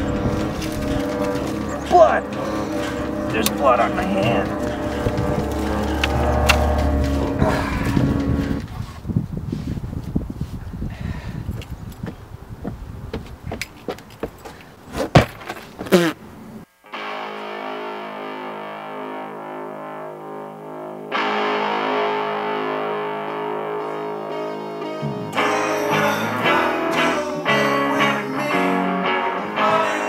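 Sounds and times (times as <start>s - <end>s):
rhythmic guitar part: 0.0s - 8.6s, 16.9s - 30.0s
bass line: 0.0s - 8.7s
distorted electric guitar: 0.0s - 8.7s, 16.8s - 30.0s.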